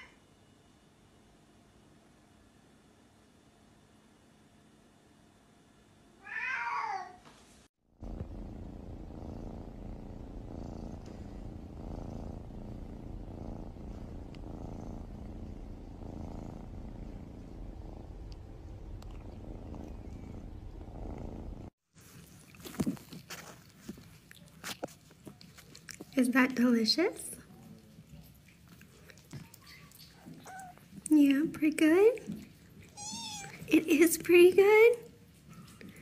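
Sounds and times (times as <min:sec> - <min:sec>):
cat meow: 0:06.2 - 0:07.2, 0:30.2 - 0:30.8, 0:32.9 - 0:33.7
kitten purring: 0:07.9 - 0:21.7, 0:22.5 - 0:36.0.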